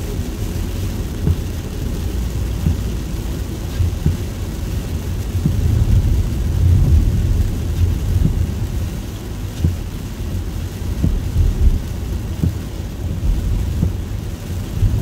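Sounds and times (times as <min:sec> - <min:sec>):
car driving on wet road: 0:00.0 - 0:15.0
soft thumps: 0:13.7 - 0:14.1.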